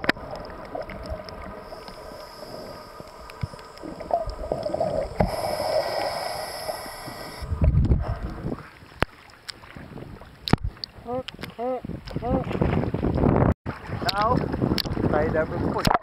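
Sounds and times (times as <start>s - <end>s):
bubbles gurgling underwater: 0.0s - 8.8s
diver breathing through regulator: 1.6s - 8.6s.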